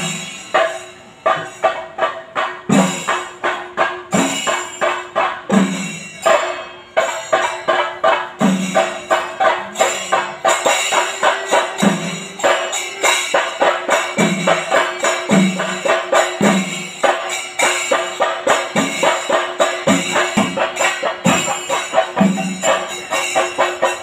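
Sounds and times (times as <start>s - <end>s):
metallic cymbal clashes: 0.0s - 24.0s
sharp drum strokes: 0.0s - 24.0s
deeper drum beat: 17.9s - 24.0s.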